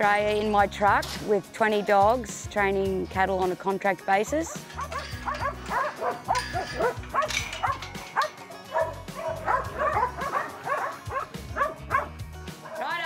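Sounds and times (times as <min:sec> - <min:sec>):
background music with low bass: 0:00.0 - 0:13.0
dogs barking and yapping: 0:04.4 - 0:12.9.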